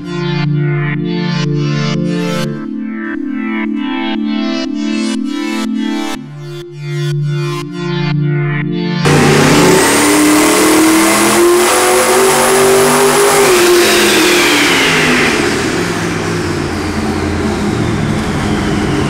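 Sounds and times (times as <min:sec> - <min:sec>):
engine revving under load: 0:09.0 - 0:19.0.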